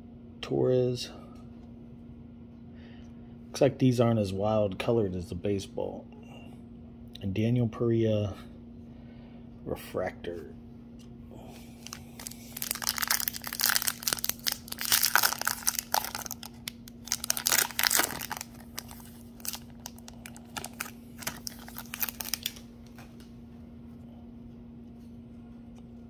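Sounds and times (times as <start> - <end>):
foil wrapper tearing and crinkling: 11.8 - 22.7.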